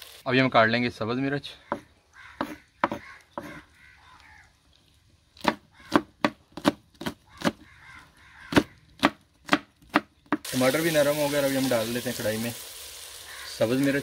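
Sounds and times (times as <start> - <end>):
knife chopping chillies: 5.4 - 7.6.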